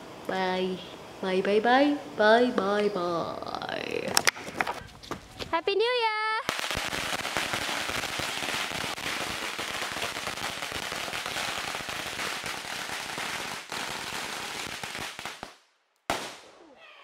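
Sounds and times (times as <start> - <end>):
firecrackers crackling: 3.8 - 16.6.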